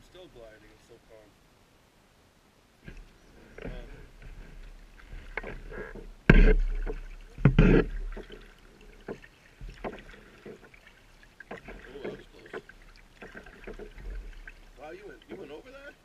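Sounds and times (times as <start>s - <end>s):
paddle stroking through water: 2.8s - 16.0s
loud thumps: 3.6s - 8.4s.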